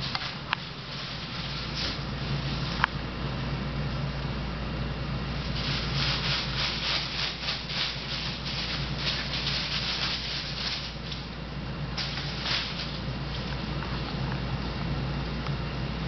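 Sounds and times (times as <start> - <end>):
paper ball crinkling: 0.0 - 2.9, 5.4 - 11.4.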